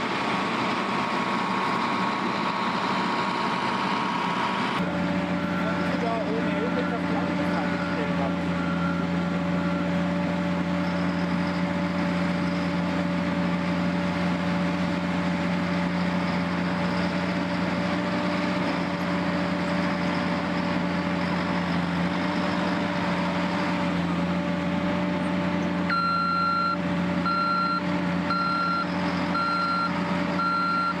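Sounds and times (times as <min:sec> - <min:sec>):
backhoe loader engine running: 0:00.0 - 0:31.0
reversing alarm beeping: 0:05.3 - 0:14.0, 0:25.9 - 0:31.0.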